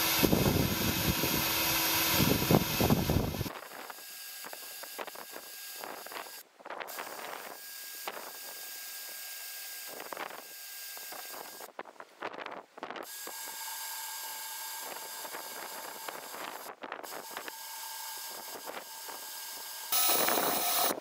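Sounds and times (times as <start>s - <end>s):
electric drill boring metal: 0.0s - 6.4s, 13.1s - 21.0s.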